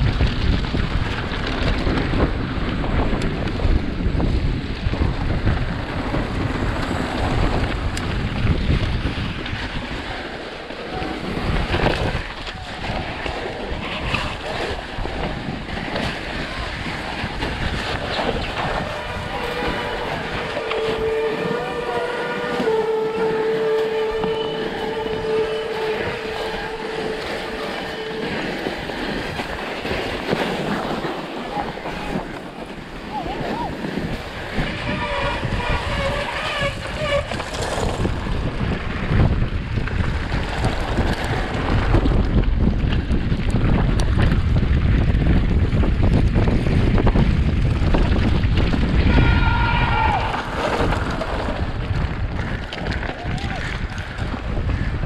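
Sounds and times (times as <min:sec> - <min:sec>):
bike tyres rumbling over rock: 0:00.0 - 0:55.0
wind rushing over microphone: 0:00.0 - 0:55.0.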